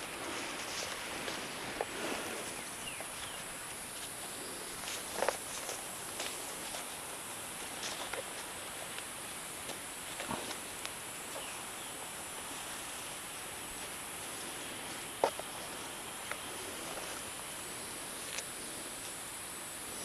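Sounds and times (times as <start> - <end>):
steady outdoor hiss: 0.0 - 20.0.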